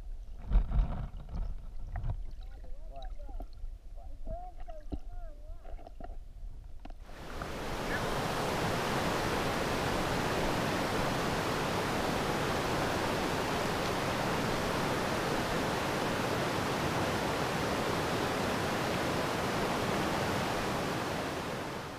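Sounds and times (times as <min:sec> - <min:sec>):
rapids rushing over rock: 0:07.1 - 0:21.9.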